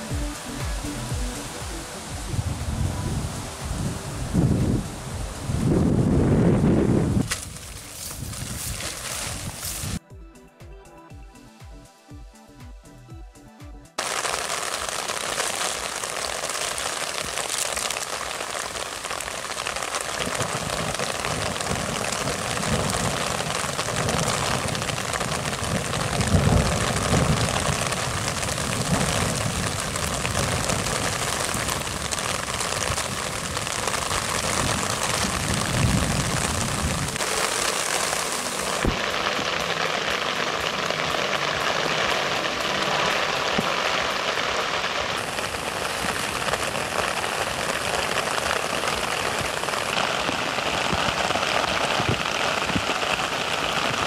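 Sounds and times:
heavy rain hissing: 0.0 - 10.0, 14.0 - 54.0
low thunder rumbles: 23.9 - 37.2.

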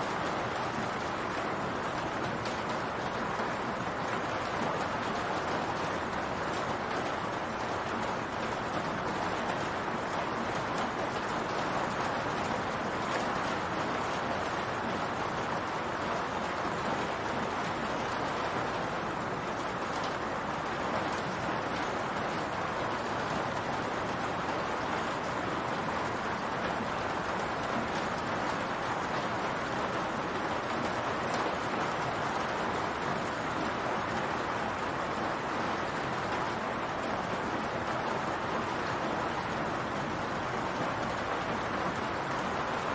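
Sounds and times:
rain on a roof: 0.0 - 42.9.

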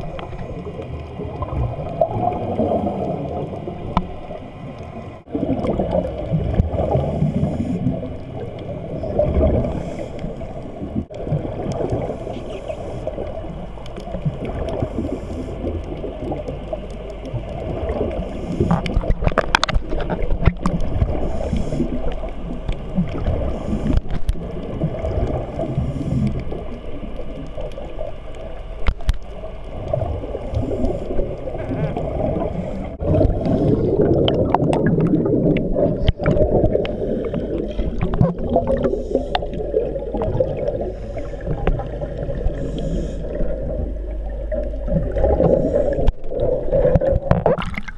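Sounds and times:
divers' exhaust bubbles gurgling: 0.0 - 47.9
muffled underwater rumble: 0.0 - 47.9.

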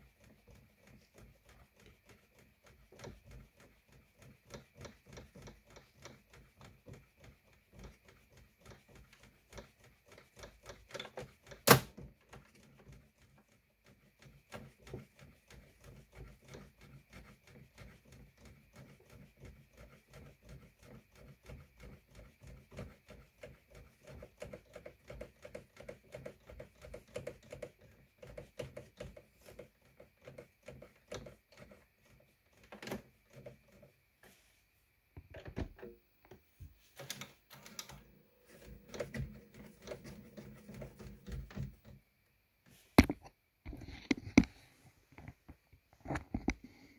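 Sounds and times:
plastic gears clicking: 35.3 - 41.9.

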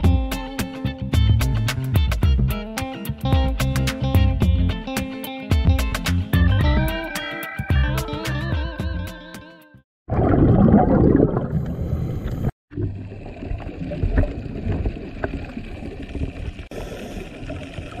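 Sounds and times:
guitar music: 0.0 - 9.8
underwater rushing water noise: 10.1 - 18.0.

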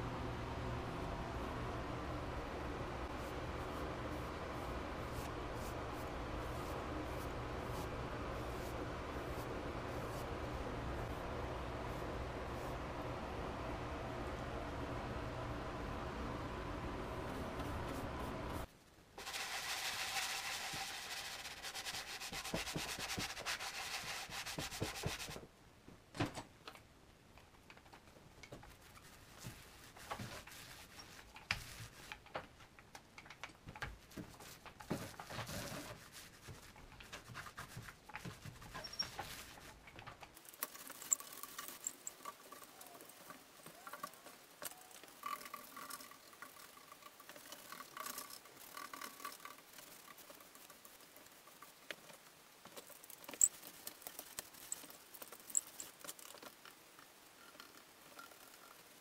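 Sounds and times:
paint brush brushing: 3.0 - 13.0, 17.2 - 25.4, 28.6 - 32.2, 34.0 - 39.8
sanding sponge rubbing on wood: 19.2 - 25.4.

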